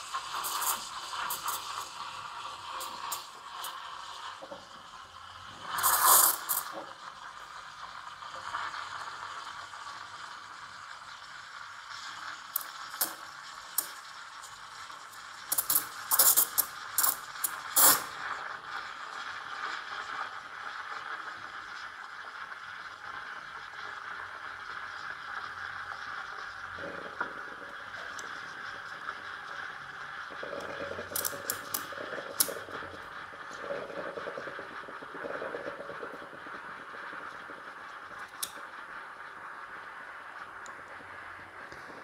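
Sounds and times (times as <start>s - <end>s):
steam wand hissing: 0.0s - 4.3s, 5.5s - 6.8s
crackling milk frothing spurts: 0.1s - 4.4s, 5.7s - 6.8s, 12.0s - 18.2s, 30.4s - 38.7s.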